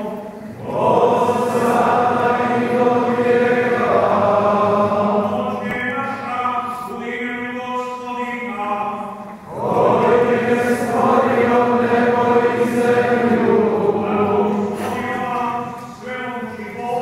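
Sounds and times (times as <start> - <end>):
group chanting: 0.0 - 5.8, 9.5 - 15.2.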